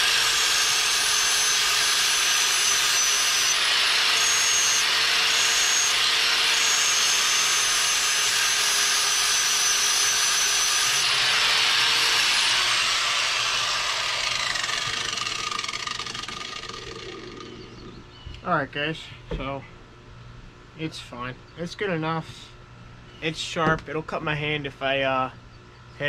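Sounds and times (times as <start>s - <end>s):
angle grinder grinding steel: 0.0s - 18.0s.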